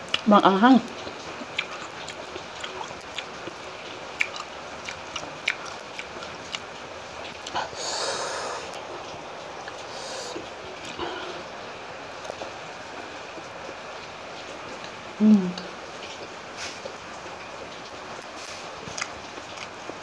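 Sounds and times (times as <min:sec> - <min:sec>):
chewing mouth sounds: 0:00.9 - 0:11.0, 0:18.2 - 0:20.0
noisy drawn breath: 0:07.6 - 0:08.8, 0:09.9 - 0:10.4.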